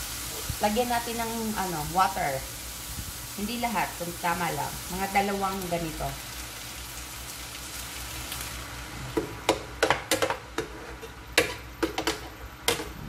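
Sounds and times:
vegetables sizzling in frying pan: 0.0s - 9.7s.

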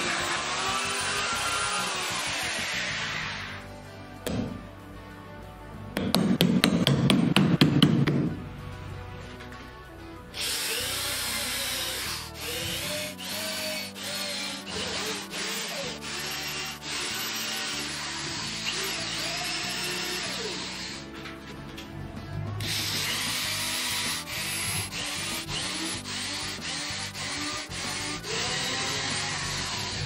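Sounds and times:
electric drill boring into wood: 0.0s - 3.6s, 10.4s - 21.1s, 22.6s - 30.0s
background music with steady beat: 0.0s - 30.0s.

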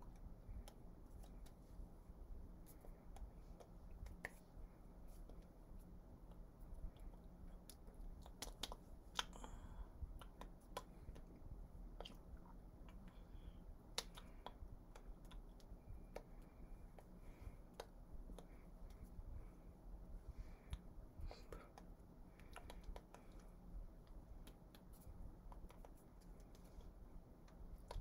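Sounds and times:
hands clicking and tapping: 0.0s - 1.7s, 2.6s - 4.4s, 6.2s - 11.4s, 13.8s - 19.1s, 20.6s - 28.0s
faint low room hum: 0.0s - 28.0s.

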